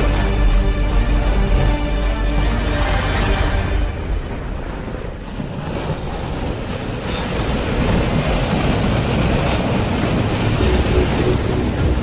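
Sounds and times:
floodwater rushing: 0.0s - 12.0s
wind buffeting microphone: 4.3s - 12.0s.

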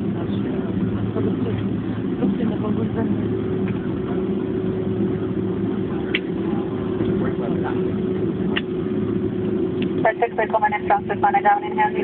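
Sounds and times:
airplane cabin drone: 0.0s - 12.0s
faint passenger voices: 0.0s - 12.0s.

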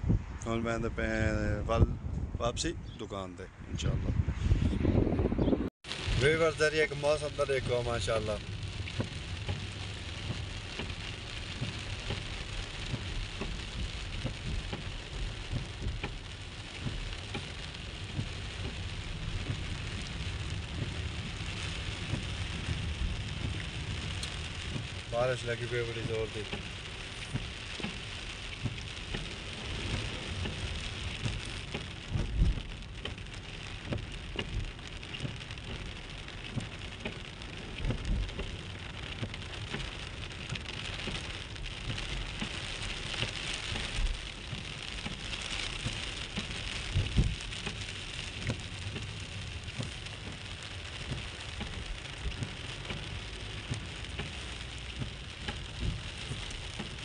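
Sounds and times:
heavy rain on car windscreen: 5.8s - 57.0s
low thumps: 43.2s - 47.8s.

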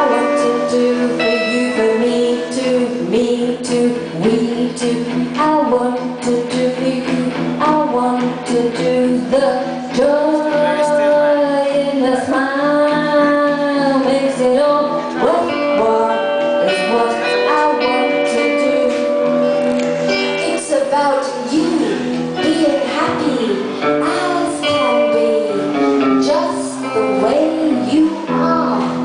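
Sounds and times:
guitar accompaniment: 0.0s - 29.0s
woman singing: 0.0s - 29.0s.

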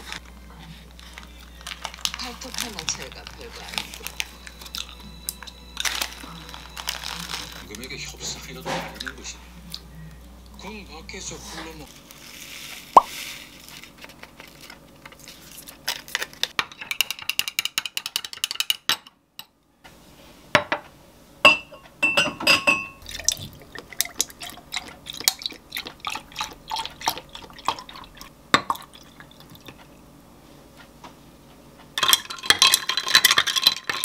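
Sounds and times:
ringing glass tones: 21.5s - 23.0s
glassware clinking: 21.5s - 23.3s, 32.0s - 34.0s
liquid pouring: 23.0s - 29.6s.

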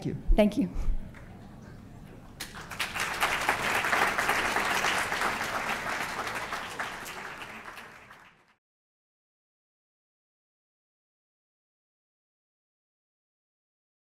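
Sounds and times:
audience applauding: 2.4s - 8.6s.

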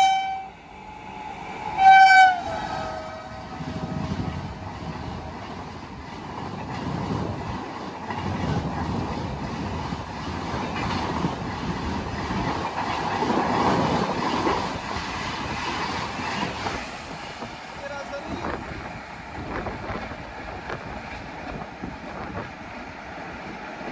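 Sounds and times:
train passing at speed: 0.0s - 23.9s.

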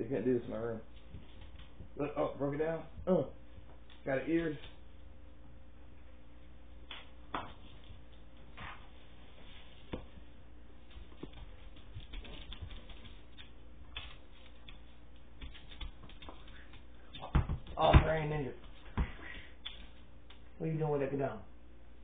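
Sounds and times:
steady low hum: 0.0s - 22.0s
dog claws tapping on hardwood floor: 10.9s - 20.4s.

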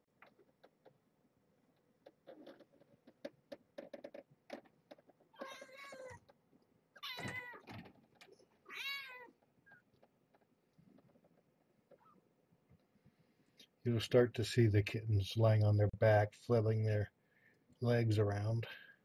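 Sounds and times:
handling clicks and rustles: 0.0s - 8.6s, 9.3s - 12.9s.

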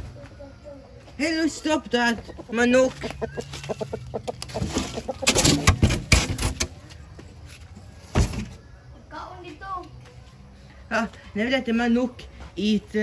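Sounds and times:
chicken clucking: 0.0s - 8.0s.

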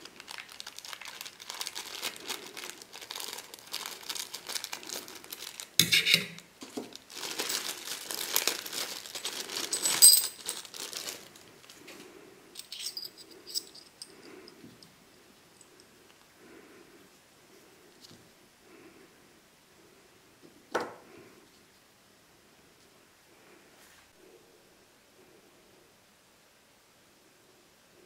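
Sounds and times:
plastic bag crinkling: 0.0s - 12.0s
light metallic clinks: 9.7s - 10.5s, 12.6s - 15.0s.

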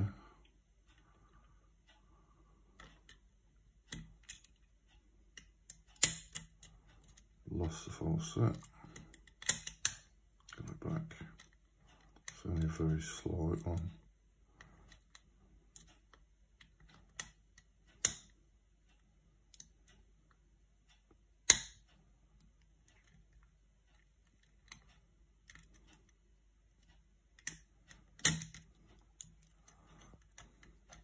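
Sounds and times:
lock pick clicking in lock: 5.4s - 7.2s, 8.6s - 10.0s, 27.4s - 29.4s.

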